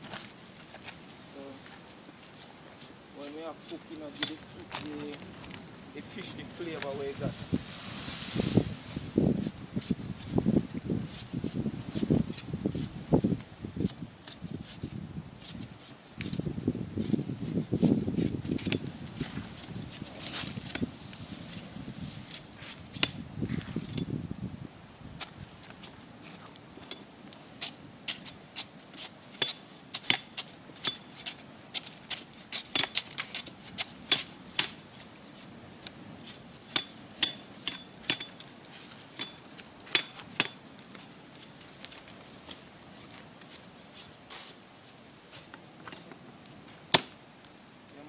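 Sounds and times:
machete chopping wooden pole: 46.9 - 47.2.

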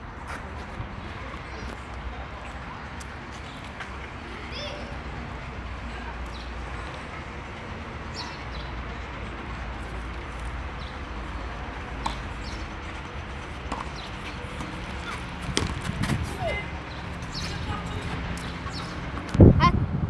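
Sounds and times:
outdoor background noise: 0.0 - 20.0
tennis racket striking ball: 13.6 - 16.4.

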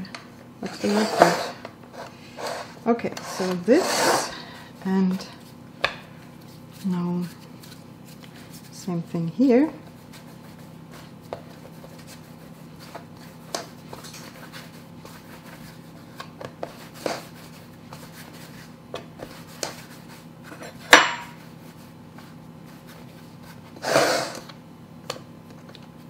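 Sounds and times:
metal pan scraping across board: 0.6 - 4.4
hands rolling dough on wood: 0.6 - 23.8.

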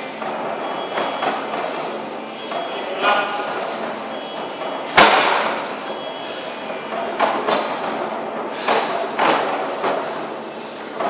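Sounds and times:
gym equipment thudding on floor: 4.9 - 5.6.

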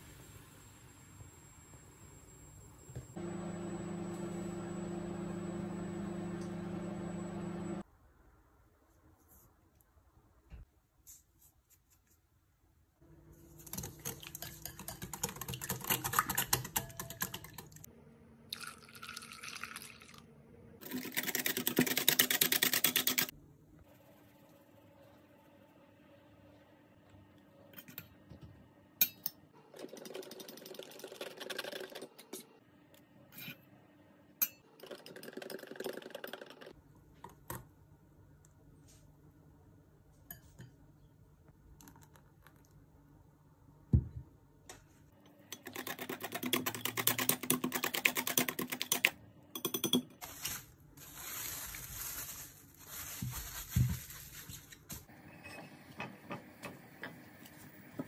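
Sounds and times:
whisk beating in glass bowl: 13.8 - 17.7
cling film crinkling: 50.2 - 55.1.

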